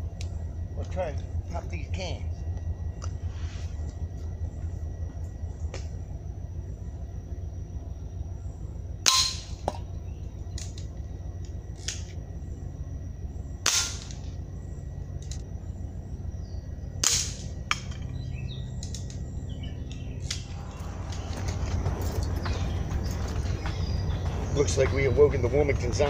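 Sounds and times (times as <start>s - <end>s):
airgun shots: 13.6s - 14.2s, 17.0s - 17.9s.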